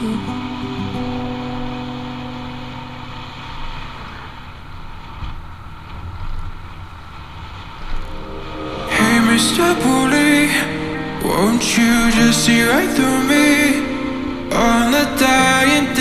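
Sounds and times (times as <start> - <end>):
wind and road noise: 0.4 - 12.1
background music: 8.1 - 16.0.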